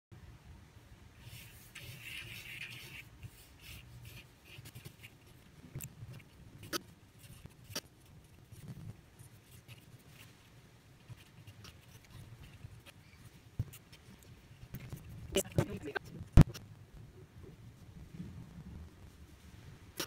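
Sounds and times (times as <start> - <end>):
pencil scratching on paper: 1.2 - 5.5, 6.1 - 15.7.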